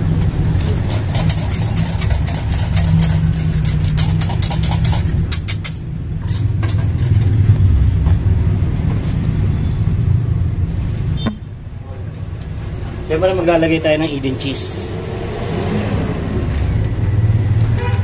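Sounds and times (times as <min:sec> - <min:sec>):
whisk scraping metal saucepan: 0:00.5 - 0:05.8.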